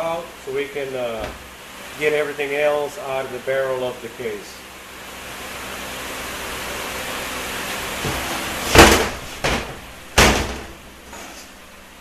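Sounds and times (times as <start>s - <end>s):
heavy metal case thuds: 8.0s - 10.8s.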